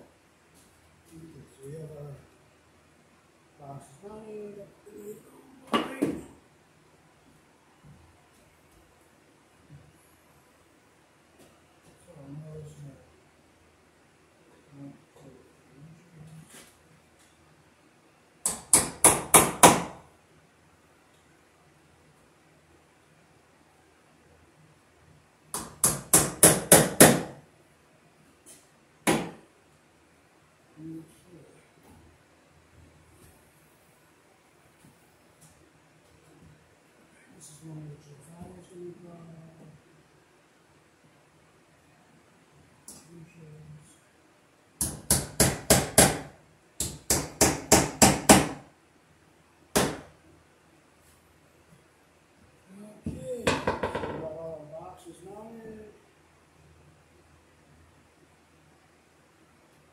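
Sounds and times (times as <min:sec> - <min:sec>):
hammer striking wooden stud: 0:18.5 - 0:20.0, 0:25.6 - 0:27.4, 0:29.1 - 0:29.4, 0:44.8 - 0:48.6, 0:49.7 - 0:50.1.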